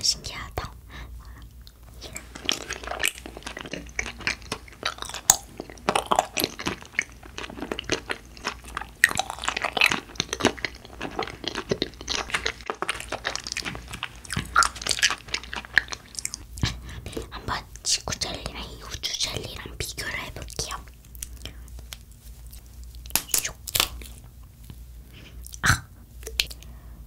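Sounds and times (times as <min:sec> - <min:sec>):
chewing gummy candy: 0:00.6 - 0:26.8.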